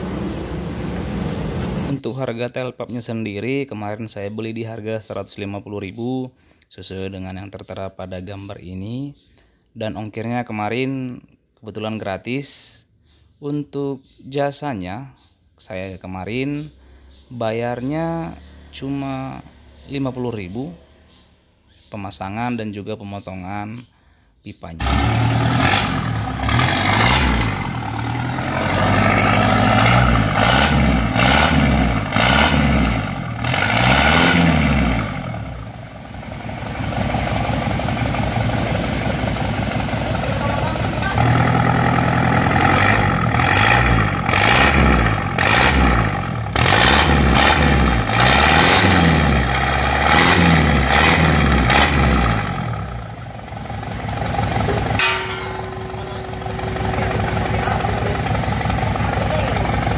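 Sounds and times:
diesel engine revving: 0.0s - 2.0s, 24.8s - 59.9s.

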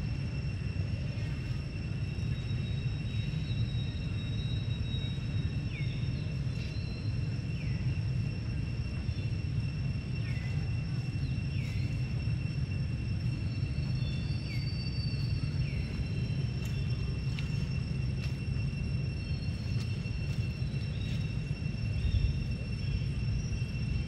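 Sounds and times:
high insect drone: 0.0s - 24.0s.

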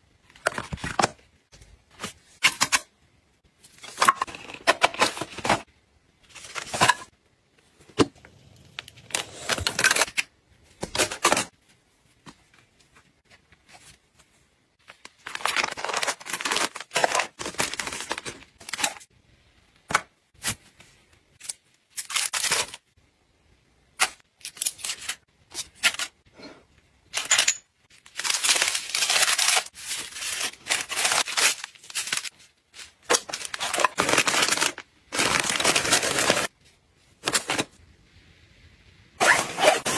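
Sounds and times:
plastic bags crinkling: 15.0s - 19.0s, 27.9s - 36.5s.

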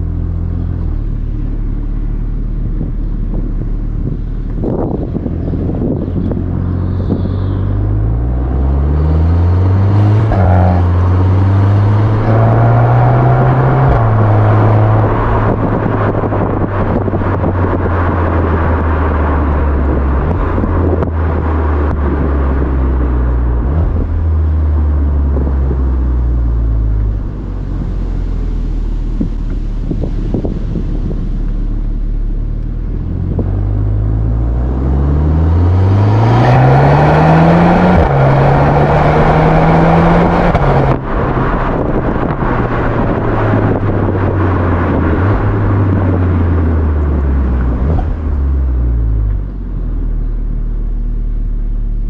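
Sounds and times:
car engine and exhaust drone: 0.0s - 52.0s.

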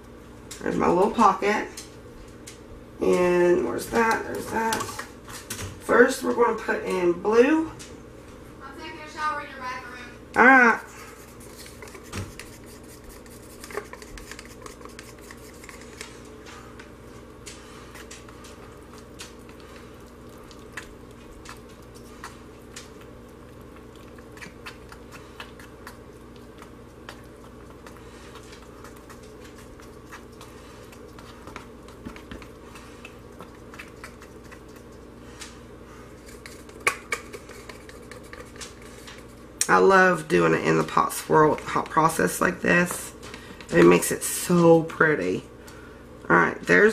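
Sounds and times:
steady low hum: 0.0s - 46.9s
spoon clicking and scraping pot: 11.4s - 16.0s, 36.2s - 39.3s.

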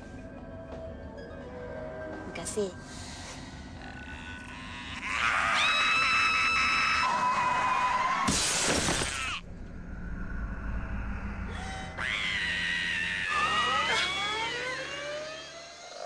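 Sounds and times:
crash with shattering glass: 8.2s - 9.4s
low rumble: 9.3s - 13.2s
tires shrieking: 10.8s - 15.5s.

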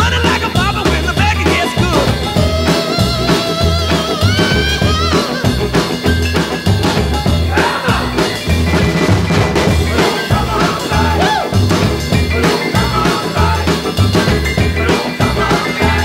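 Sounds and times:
voice or lead instrument: 0.0s - 5.7s
music with drums and bass: 0.0s - 16.0s.

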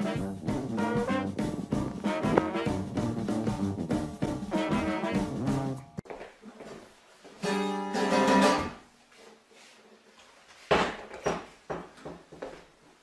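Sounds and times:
acoustic guitar chord strummed: 7.4s - 8.8s.

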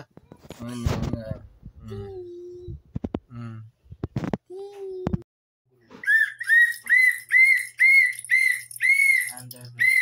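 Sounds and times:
plastic toy whistle toots: 6.0s - 10.0s.

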